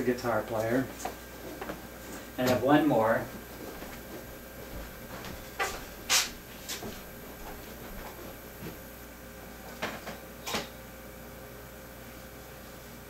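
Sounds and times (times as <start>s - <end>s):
objects knocking and scraping: 3.5s - 8.8s.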